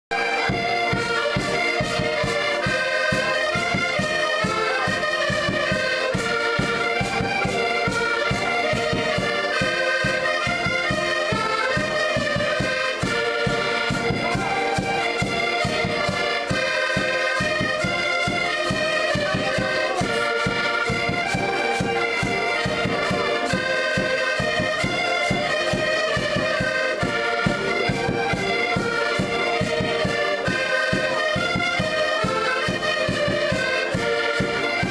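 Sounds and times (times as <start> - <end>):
accordions playing folk tune: 0.1 - 34.9.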